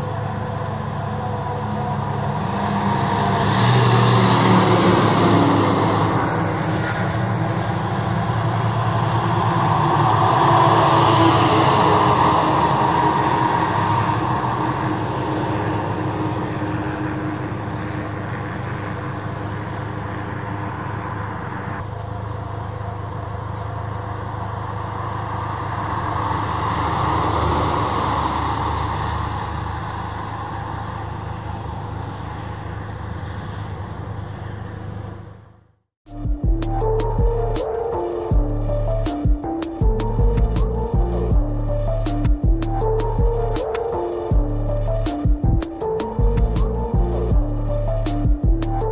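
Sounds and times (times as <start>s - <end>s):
fire trucks driving by: 0.0s - 48.9s
music: 36.1s - 48.9s.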